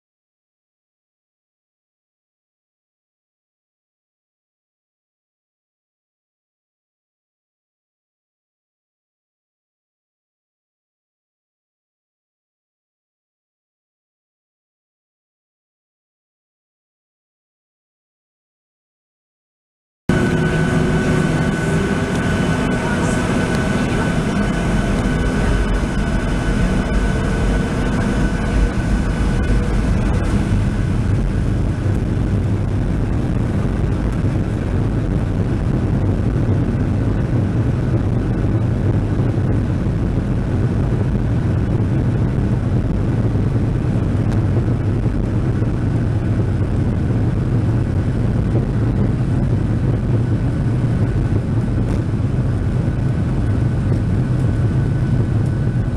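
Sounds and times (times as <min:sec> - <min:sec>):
thin whining tones: 0:20.1 - 0:31.5
jet engines roaring: 0:20.1 - 0:55.9.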